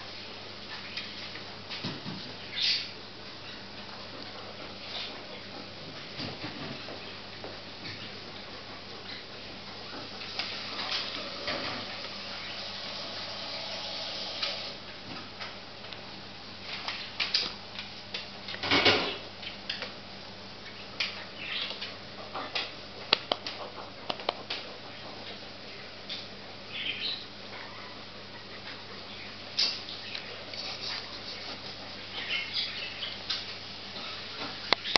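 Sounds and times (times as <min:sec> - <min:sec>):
rustling scrape: 0:30.3 - 0:32.4.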